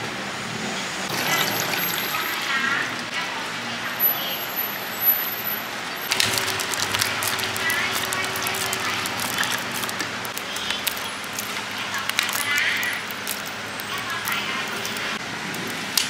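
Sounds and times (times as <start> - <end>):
metal utensils clinking: 1.1 - 2.6, 6.0 - 16.0
background voices: 6.0 - 15.2
food frying sizzle: 6.0 - 16.0.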